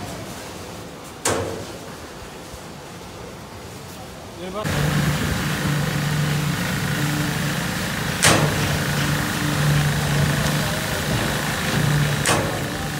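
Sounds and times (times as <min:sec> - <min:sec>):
construction machinery engine humming: 0:04.6 - 0:12.9
sharp click: 0:08.2 - 0:08.6.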